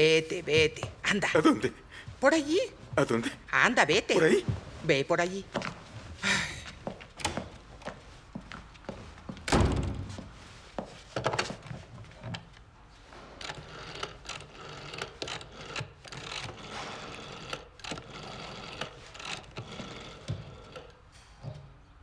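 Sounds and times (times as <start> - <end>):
rotary telephone dial turning: 13.4 - 20.9.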